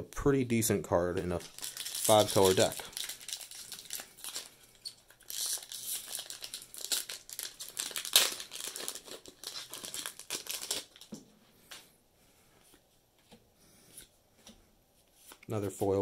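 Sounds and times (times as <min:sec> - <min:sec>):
foil wrapper crinkling: 0:01.3 - 0:11.1.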